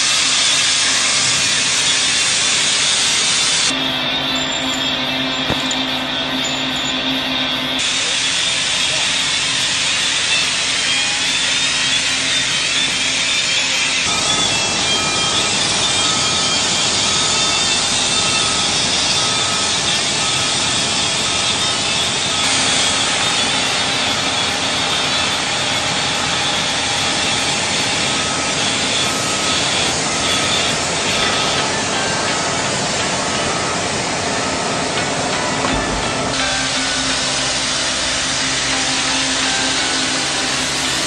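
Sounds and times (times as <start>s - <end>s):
heavy machine engine drone: 0.0s - 41.0s
back-up alarm beeping: 2.8s - 8.2s, 14.1s - 41.0s.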